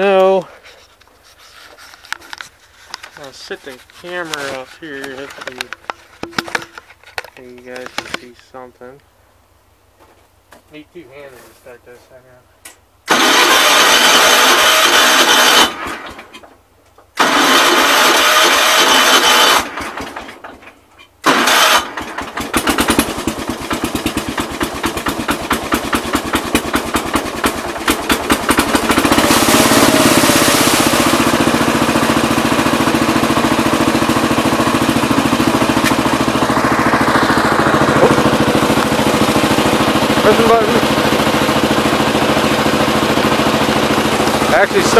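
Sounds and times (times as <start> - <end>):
tractor engine starting and running: 0.0 - 9.0, 13.0 - 44.9
short loud bursts of noise: 13.0 - 16.4, 17.2 - 20.3, 21.2 - 23.0, 28.4 - 33.6.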